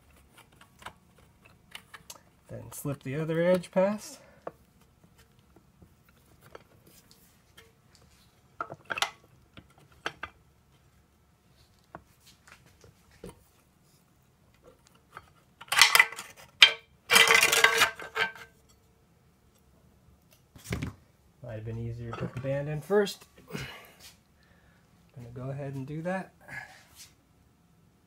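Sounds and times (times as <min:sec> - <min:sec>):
metal parts clattering: 0:15.6 - 0:18.5.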